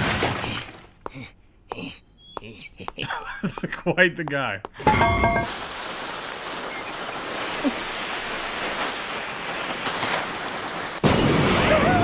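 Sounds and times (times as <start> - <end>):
fuse hissing: 5.4 - 11.0
cannon boom: 11.0 - 12.0.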